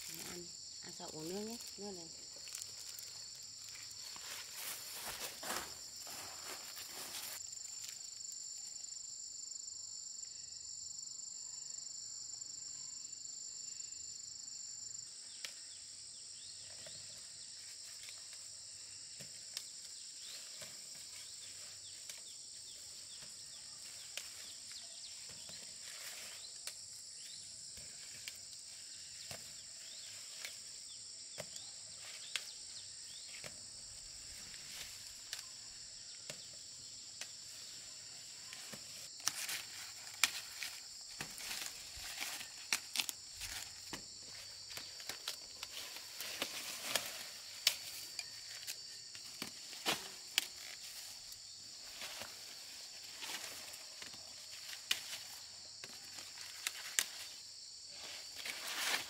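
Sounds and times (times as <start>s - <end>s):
dry corn stalks rustling and snapping: 0.0s - 8.0s, 19.1s - 27.0s, 27.7s - 30.8s, 31.4s - 32.6s, 33.3s - 37.7s, 38.4s - 57.4s, 58.0s - 59.0s
high-pitched insect chorus: 0.0s - 59.0s.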